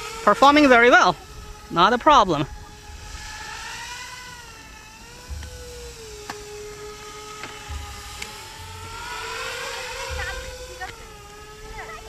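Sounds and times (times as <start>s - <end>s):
drone propellers humming: 0.0s - 12.0s
wind rumble on microphone: 0.0s - 12.0s.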